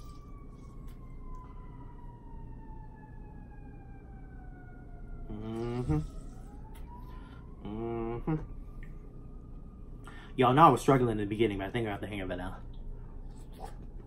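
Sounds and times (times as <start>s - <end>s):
emergency siren wailing: 0.0s - 13.3s
man humming: 5.3s - 6.3s, 7.6s - 8.6s.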